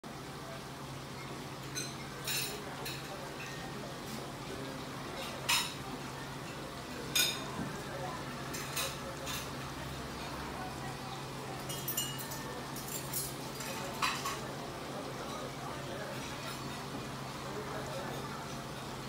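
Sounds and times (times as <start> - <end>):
water running down glass wall: 0.1 - 19.0
tableware clinking: 1.6 - 3.7, 5.2 - 5.8, 6.5 - 7.6, 11.6 - 14.5.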